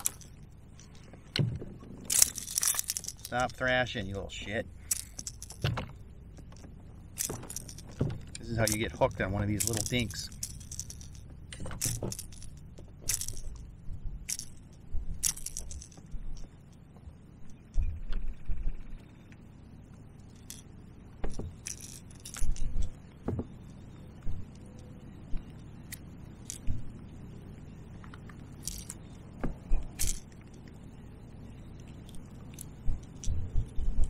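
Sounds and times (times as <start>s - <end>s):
fishing lure jangling: 0.0s - 1.1s, 1.8s - 16.8s, 20.2s - 23.1s, 24.5s - 26.9s, 28.5s - 34.0s
dull knocks: 23.2s - 23.6s.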